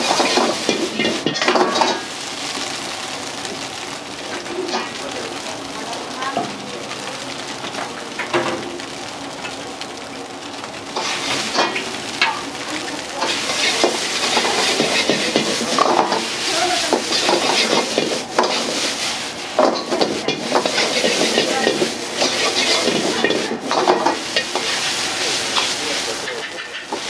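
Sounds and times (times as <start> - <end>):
metal ladle scraping wok: 0.0 - 2.1, 11.0 - 12.4, 13.2 - 27.0
food sizzling in a wok: 0.0 - 27.0.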